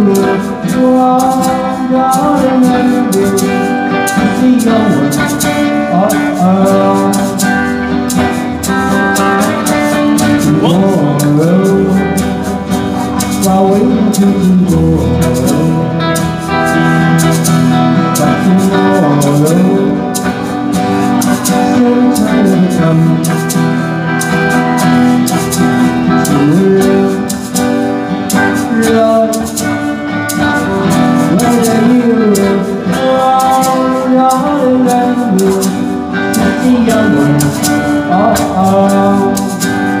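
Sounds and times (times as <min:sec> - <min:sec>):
guitars: 0:00.0 - 0:40.0
man singing: 0:00.0 - 0:40.0
percussion hits: 0:00.0 - 0:40.0.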